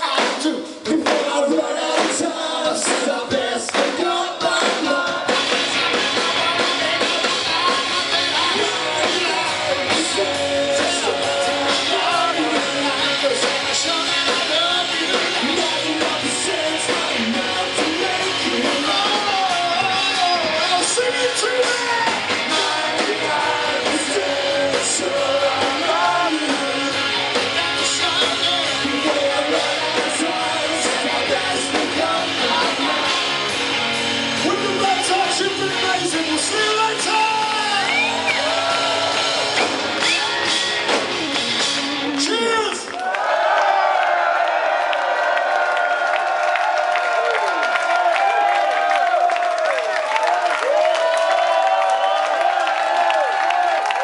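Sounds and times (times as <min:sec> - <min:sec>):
person singing: 0:00.0 - 0:33.6
live rock band: 0:00.0 - 0:43.2
electric guitar: 0:03.8 - 0:43.1.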